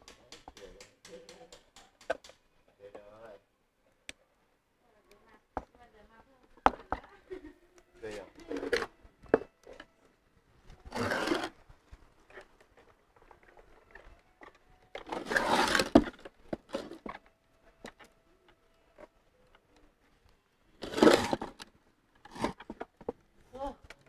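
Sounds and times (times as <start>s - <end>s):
metal housing scraping on wood: 10.9s - 11.5s, 15.0s - 17.0s.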